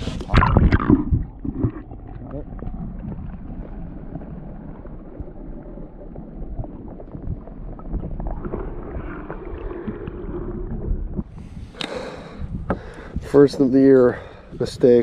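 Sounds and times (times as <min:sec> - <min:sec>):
muffled underwater sloshing: 0:00.0 - 0:11.6
faint clicks: 0:11.8 - 0:12.0.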